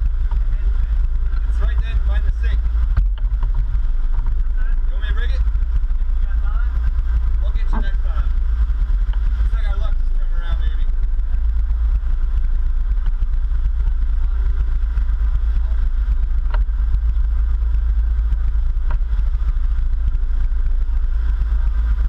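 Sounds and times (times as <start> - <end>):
boat engines rumbling: 0.0 - 22.0.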